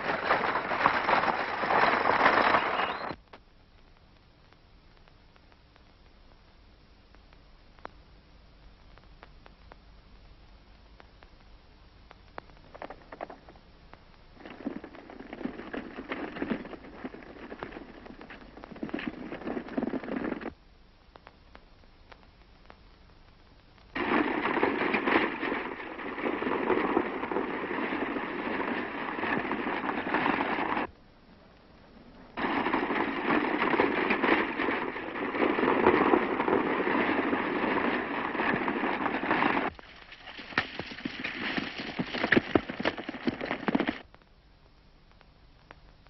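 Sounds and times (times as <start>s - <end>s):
sharp cracks: 0.0s - 4.0s, 23.6s - 30.9s, 31.6s - 44.3s
crackling rattling din: 0.0s - 6.3s, 7.1s - 44.4s.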